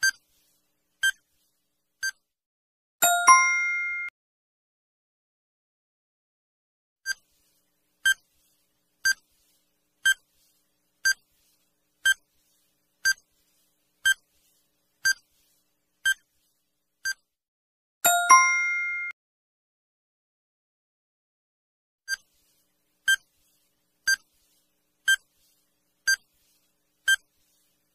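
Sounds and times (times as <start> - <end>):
ringing chime: 3.0 - 4.1, 18.1 - 19.2.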